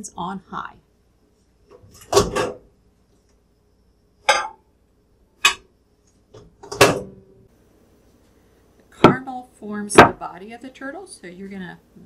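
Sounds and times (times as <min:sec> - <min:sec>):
glass dish clunks: 0:04.2 - 0:04.6.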